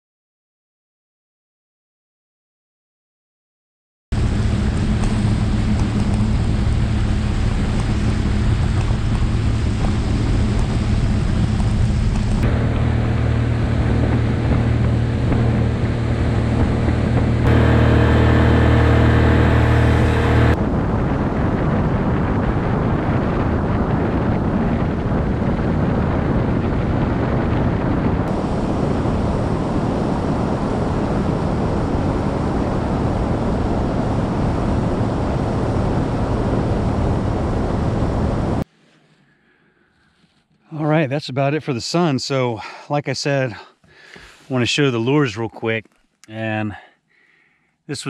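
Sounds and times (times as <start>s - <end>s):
water against hull: 4.2s - 17.5s
motorboat engine hum: 4.2s - 38.6s
wind on microphone: 4.2s - 38.7s.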